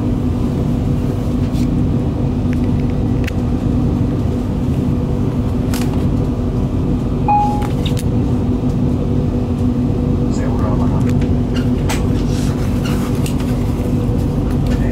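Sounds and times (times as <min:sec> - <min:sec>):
train wheels rumbling on track: 0:00.0 - 0:14.9
low hum: 0:02.0 - 0:10.3
brief high tone: 0:07.3 - 0:07.8.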